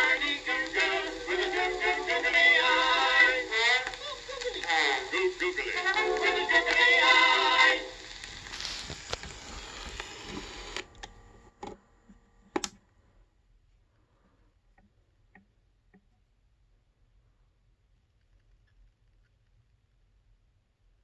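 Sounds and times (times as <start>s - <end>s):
male duet singing on old record: 0.0s - 8.2s
record surface hiss: 0.0s - 21.0s.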